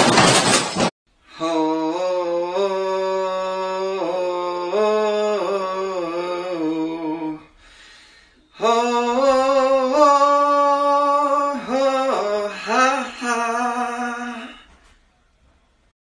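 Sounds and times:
man singing wordless notes: 1.3s - 7.6s, 8.4s - 14.9s.

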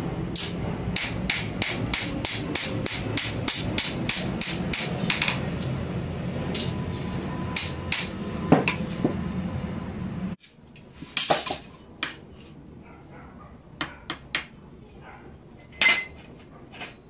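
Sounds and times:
low rumble: 3.4s - 10.4s.

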